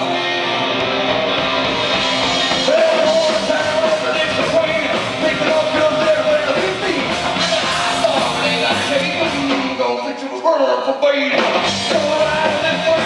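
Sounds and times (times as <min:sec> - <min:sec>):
live band playing loudly: 0:00.0 - 0:13.0
man shouting vocals: 0:02.7 - 0:13.0.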